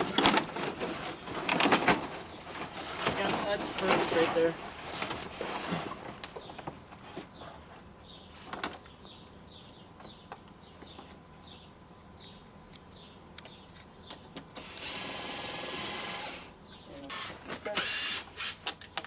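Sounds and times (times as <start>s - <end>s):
power drill driving screw: 14.6s - 16.5s, 17.1s - 18.8s.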